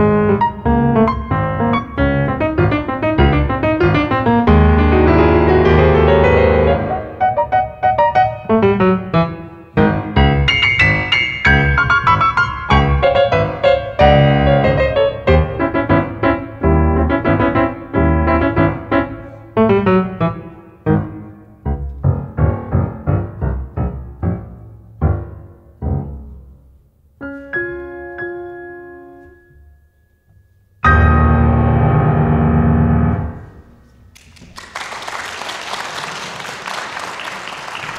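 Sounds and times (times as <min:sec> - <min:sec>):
solo piano: 0:00.0 - 0:34.1.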